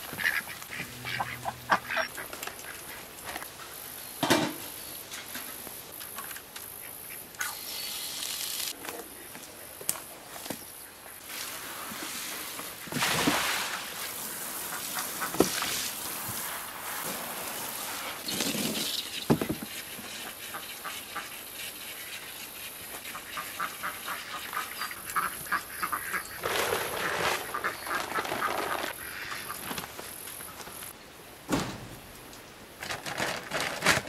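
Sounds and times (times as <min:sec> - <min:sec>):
ducks quacking: 0:00.0 - 0:03.1, 0:23.1 - 0:29.6
water splashing from a hose: 0:11.3 - 0:18.9.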